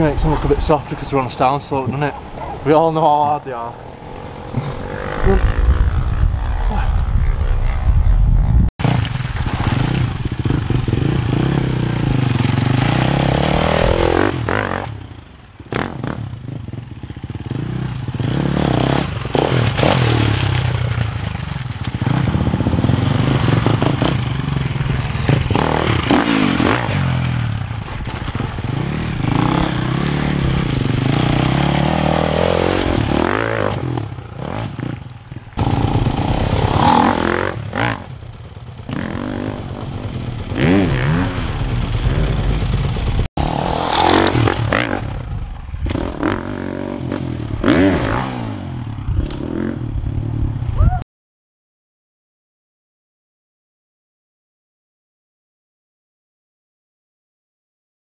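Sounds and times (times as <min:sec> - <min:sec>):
motocross engine revving: 0:09.6 - 0:20.4, 0:22.0 - 0:27.7, 0:28.4 - 0:49.8.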